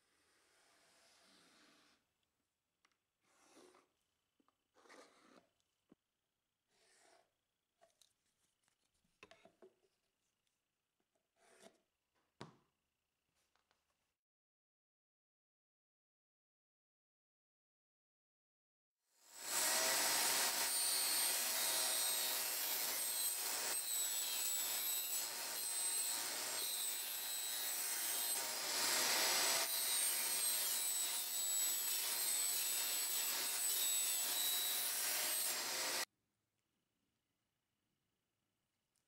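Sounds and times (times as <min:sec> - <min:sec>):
table saw cutting wood: 0:19.3 - 0:36.1.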